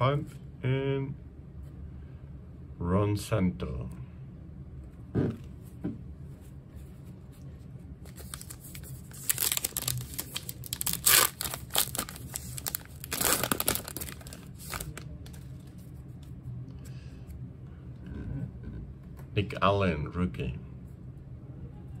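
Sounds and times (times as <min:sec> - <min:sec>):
plastic wrapper tearing and crinkling: 0:08.1 - 0:15.4.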